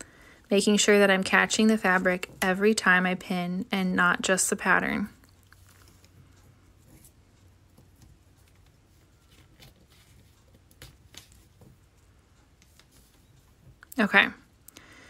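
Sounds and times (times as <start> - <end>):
paper and fabric rustling: 4.3 - 14.1.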